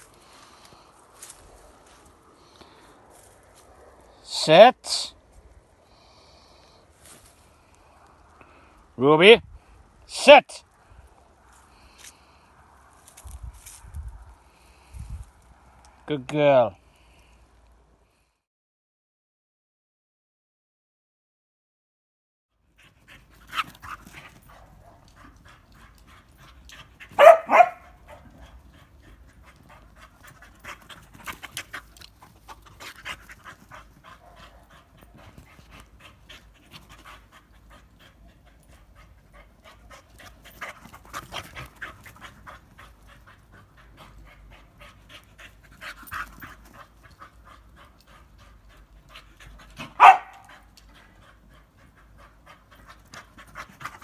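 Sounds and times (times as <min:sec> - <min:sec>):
dog panting: 0:22.7 - 0:54.0.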